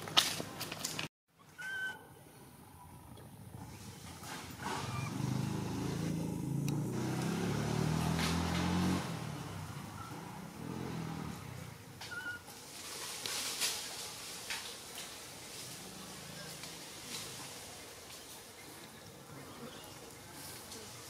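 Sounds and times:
vehicle engine passing by: 3.5s - 12.0s, 15.5s - 18.4s.

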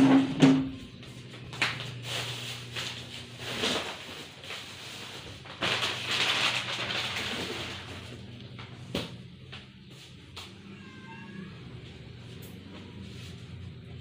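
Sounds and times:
plastic packaging crinkling: 1.4s - 8.6s.

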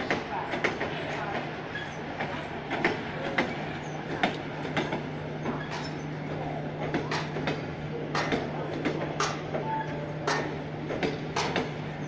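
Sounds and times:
train rumble: 0.0s - 12.0s
train wheels clacking over rail joints: 0.0s - 12.0s.

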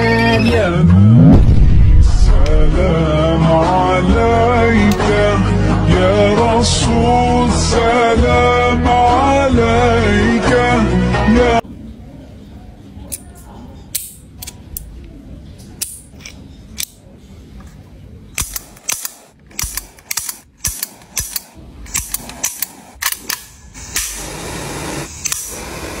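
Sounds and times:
toy pistols clicking: 18.4s - 24.2s
lighter flame hissing: 20.7s - 26.0s.

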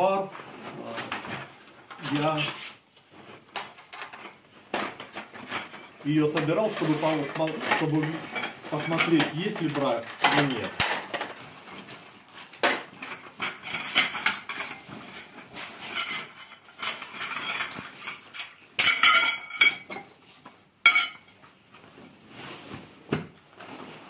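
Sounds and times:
metal tubes clinking and clattering: 3.6s - 11.9s, 12.7s - 21.5s.

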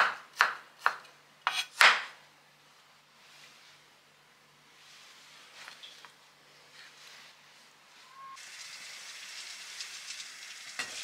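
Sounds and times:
water boiling in pot: 8.4s - 11.0s.

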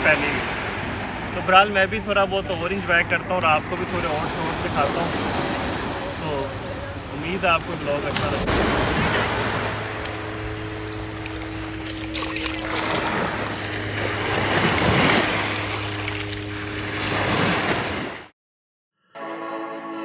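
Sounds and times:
steady low hum: 0.0s - 17.4s
small waves washing over sand: 0.0s - 18.3s
music: 19.0s - 20.0s.

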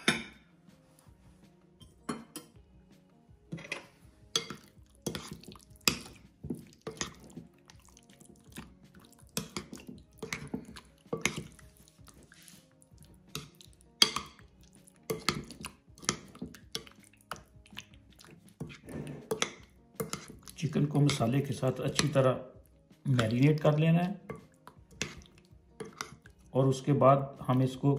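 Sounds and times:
spoon clinking and scraping bowl: 3.5s - 22.2s, 24.3s - 26.5s
wet mixing sounds: 3.5s - 27.9s.

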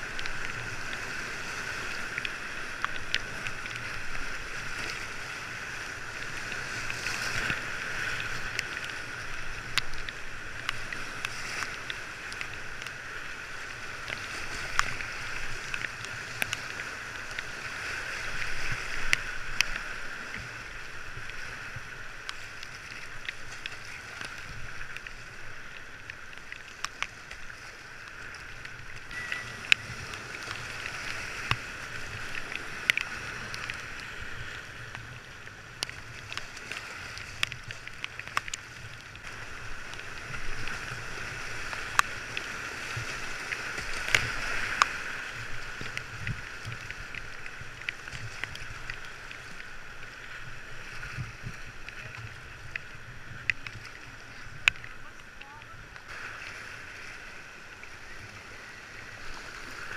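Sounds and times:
paddle strokes: 0.0s - 59.9s
water splashing against boat: 0.0s - 59.9s
river rapids rushing: 28.8s - 34.2s.

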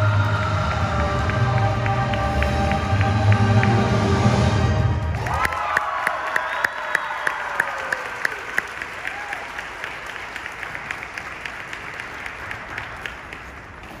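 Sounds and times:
audience applauding: 0.5s - 4.3s, 5.1s - 14.0s.

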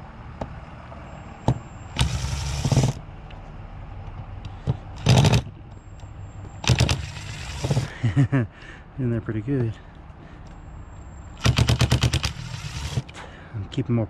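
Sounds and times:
impact driver hammering: 2.0s - 3.0s, 5.0s - 5.6s, 6.6s - 7.9s, 11.4s - 13.2s.

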